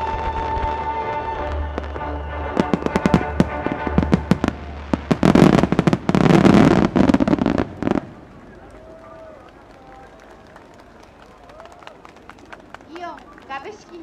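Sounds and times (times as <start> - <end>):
music: 0.0 - 5.6
fireworks bangs and crackling: 0.0 - 8.7.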